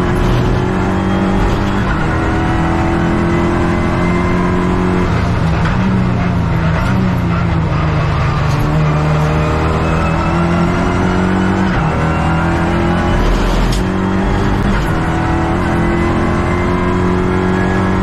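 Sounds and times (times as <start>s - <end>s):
race car engine running hard: 0.0s - 18.0s.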